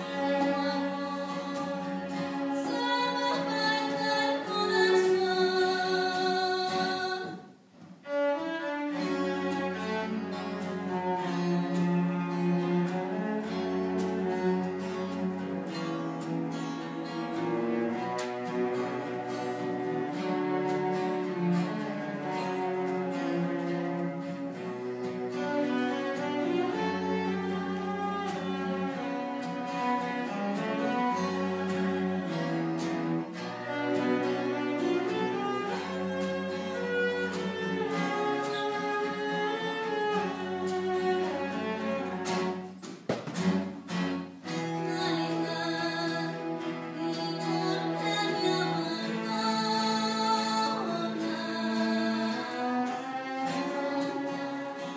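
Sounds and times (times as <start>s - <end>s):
cello bowed notes: 0.0s - 54.9s
guitar accompaniment: 0.0s - 54.9s
sharp knocks: 42.8s - 43.7s.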